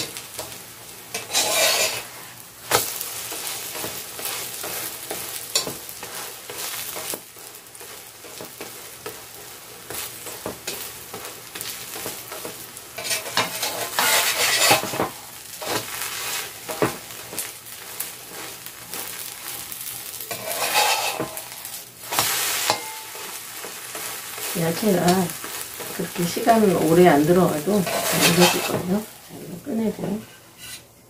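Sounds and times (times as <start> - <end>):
pancake sizzling in oil: 0.0 - 31.0
metal spatula scraping pan: 1.1 - 2.3, 9.9 - 19.6, 20.2 - 29.1, 29.7 - 30.9.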